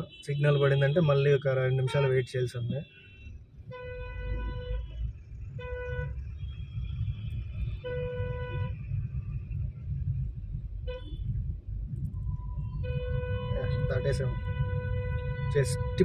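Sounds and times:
vehicle horns honking: 0.0 - 5.0, 5.6 - 6.6, 7.7 - 8.8, 12.6 - 16.0
engine and road rumble: 0.0 - 16.0.

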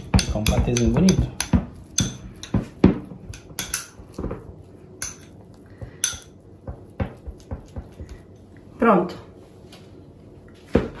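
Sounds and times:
spoon stirring in glass bowl: 0.0 - 4.2, 5.0 - 8.4.

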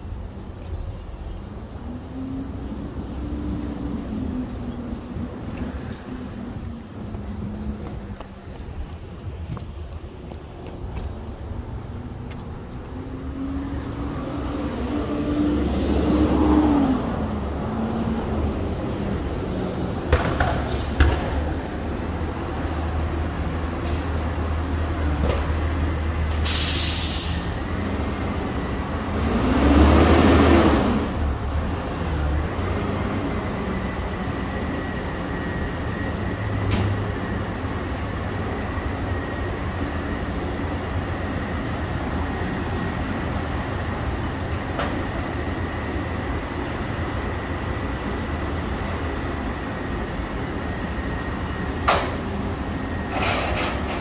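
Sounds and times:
diesel engine idling and revving: 11.2 - 54.0
air brake hiss: 23.8 - 24.2, 26.3 - 27.6.

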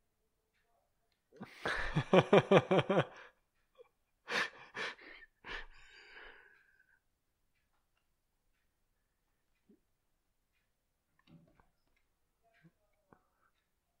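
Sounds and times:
person laughing: 1.4 - 5.7.

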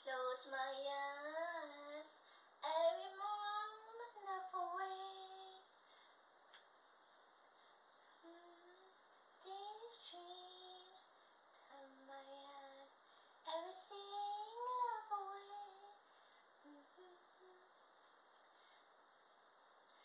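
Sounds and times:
woman singing unaccompanied: 0.0 - 5.7, 8.2 - 16.0, 16.6 - 17.7.

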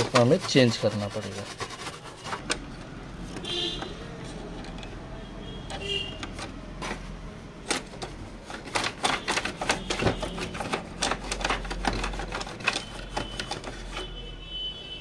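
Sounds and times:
hand tool clicking on plastic: 7.6 - 14.2.

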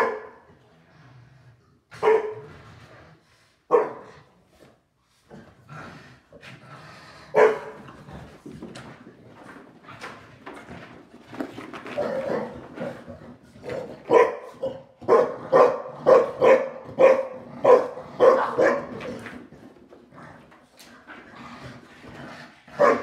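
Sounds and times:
dogs barking in play: 0.0 - 0.5, 1.9 - 2.5, 3.7 - 4.3, 7.3 - 8.4, 11.9 - 19.6, 22.6 - 23.0.

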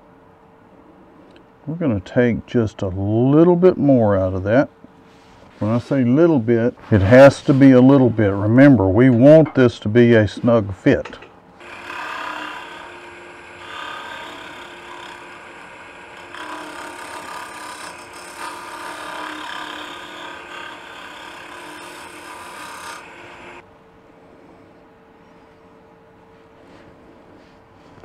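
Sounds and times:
lathe humming: 11.6 - 23.6
turning tool scraping wood: 11.6 - 23.6.

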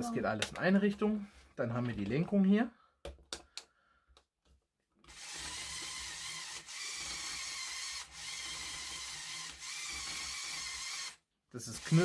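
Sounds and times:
electric motor running: 5.1 - 11.2, 11.8 - 12.0.

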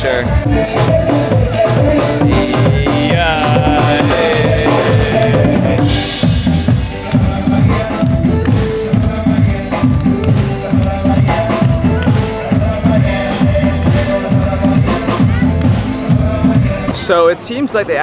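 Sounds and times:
upbeat dance band music: 0.0 - 17.4.

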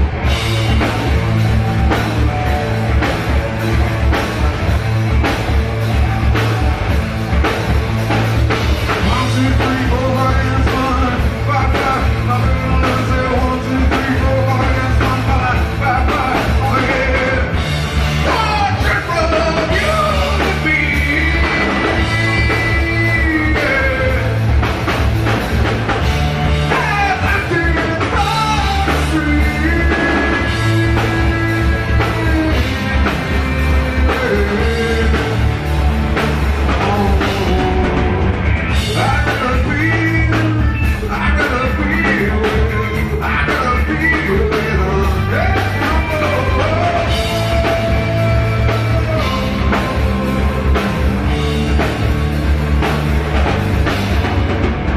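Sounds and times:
rock band playing: 0.0 - 54.9
man singing: 8.8 - 24.7, 26.6 - 35.6, 36.6 - 51.0.

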